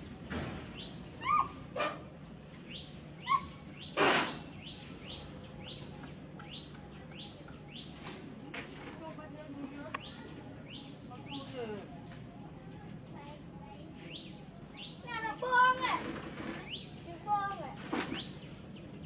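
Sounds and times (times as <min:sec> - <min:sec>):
bird chirping: 0:02.6 - 0:08.2, 0:09.8 - 0:12.6, 0:14.0 - 0:15.8, 0:16.5 - 0:17.0, 0:18.1 - 0:19.0
shrill bird calls: 0:02.7 - 0:07.9.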